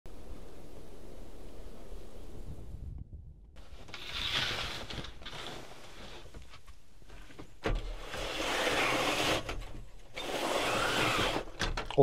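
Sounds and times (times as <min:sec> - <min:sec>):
rustling and scraping: 0:03.6 - 0:12.0.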